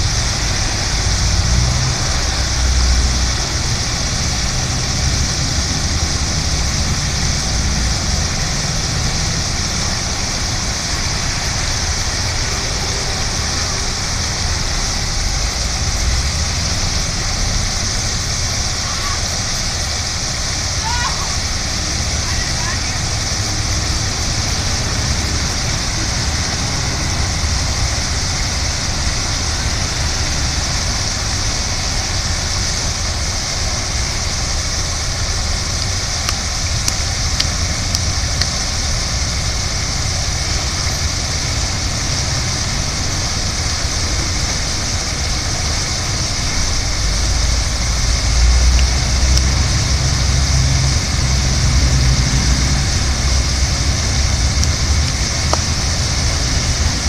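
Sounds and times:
low rumble: 0.0 - 20.8
fountain water splashing: 0.0 - 57.0.

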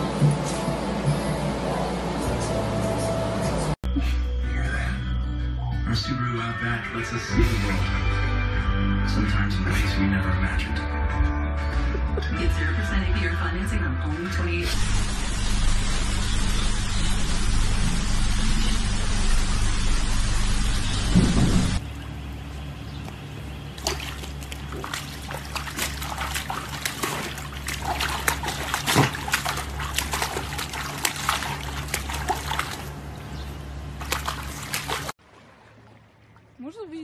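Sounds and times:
loud steady hiss: 14.7 - 21.8
water splashing and sloshing: 21.0 - 37.0.

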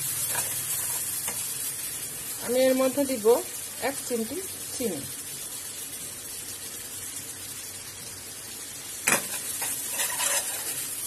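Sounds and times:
sauce sizzling in pan: 0.0 - 11.0
metal spoon scraping pan: 0.2 - 1.1, 9.1 - 10.9.

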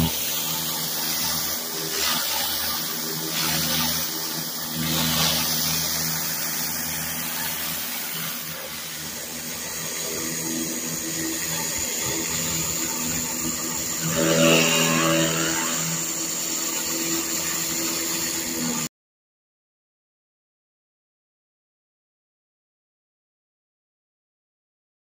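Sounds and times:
pressure washer humming: 0.0 - 18.9
water jets hissing on concrete: 0.0 - 18.9.

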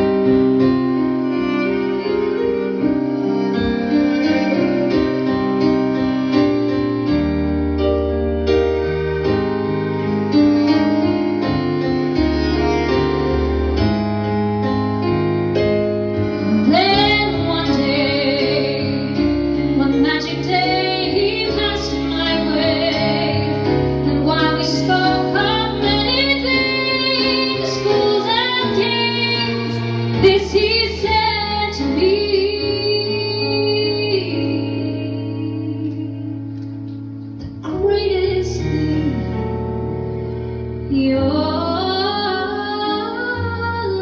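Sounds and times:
live band playing ballad: 0.0 - 44.0
woman singing: 16.4 - 36.4, 37.4 - 39.7, 40.9 - 44.0.

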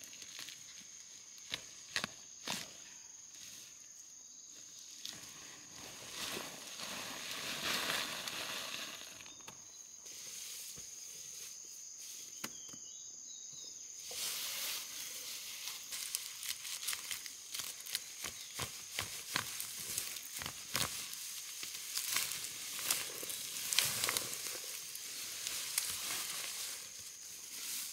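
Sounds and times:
high insect drone: 0.0 - 27.9.

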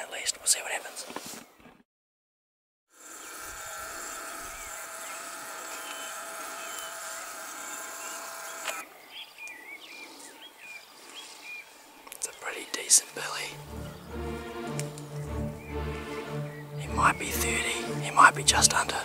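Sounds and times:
insects droning: 3.0 - 8.9
bird chirps: 5.8 - 7.0, 7.7 - 19.0.

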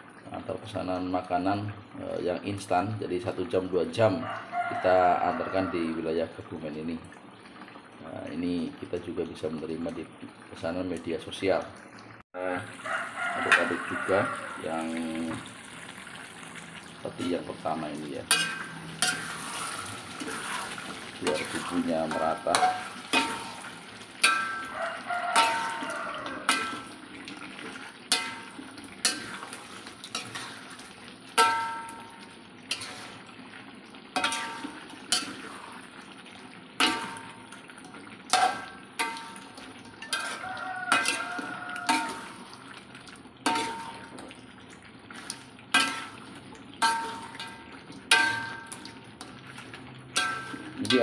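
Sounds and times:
metal spatula scraping a wok: 18.3 - 27.0, 28.1 - 32.1, 32.7 - 33.2, 38.3 - 42.6, 43.5 - 44.2, 45.2 - 48.8, 50.1 - 51.0.

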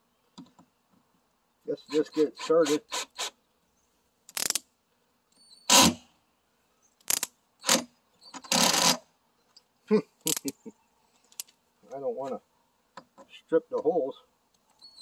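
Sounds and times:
cordless drill driving screws: 2.0 - 3.4, 5.7 - 6.0, 7.1 - 9.0.

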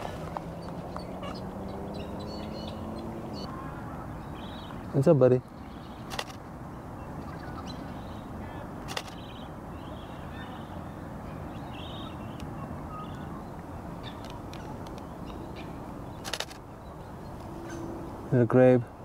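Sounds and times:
faint bird calls: 0.0 - 18.3
camera shutter clicks: 6.1 - 6.4, 8.8 - 9.3, 16.2 - 16.6.

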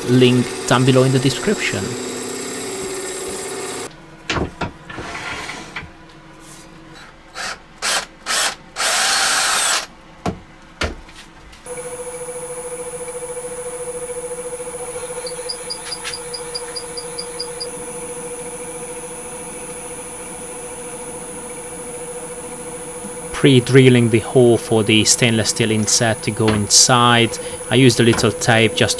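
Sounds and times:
abrasive rubbing spinning wood: 0.0 - 3.9
drill bit boring: 0.0 - 3.9, 7.4 - 9.9, 11.7 - 28.9
lathe hum with high whine: 0.0 - 3.9, 11.7 - 28.9.

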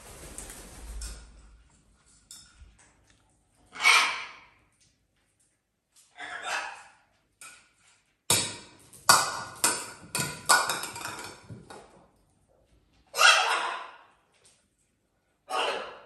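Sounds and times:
knocks and clatters on hard floor: 8.3 - 12.2.

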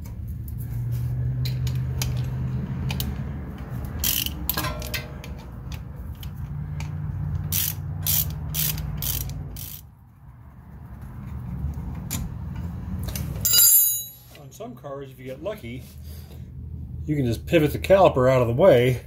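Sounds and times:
socket ratchet clicking: 4.0 - 4.6, 5.7 - 9.8.

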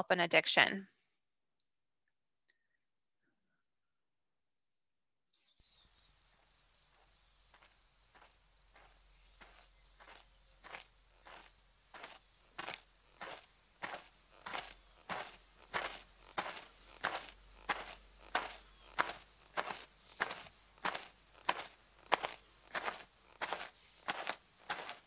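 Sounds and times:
crickets chirring: 5.6 - 25.0
soft footsteps: 6.9 - 25.0.

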